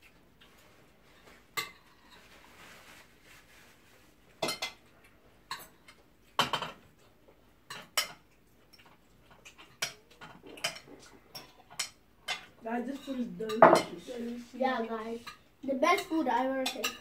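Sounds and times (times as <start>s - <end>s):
cutlery clinking on plates: 1.2s - 2.3s, 4.4s - 7.0s, 7.7s - 14.1s, 15.2s - 17.0s.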